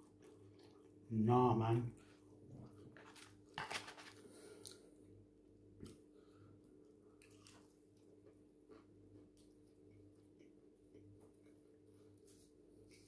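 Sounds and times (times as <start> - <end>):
chewing crispy chicken: 0.0 - 1.1, 6.8 - 12.1
faint steady hum: 0.0 - 13.0.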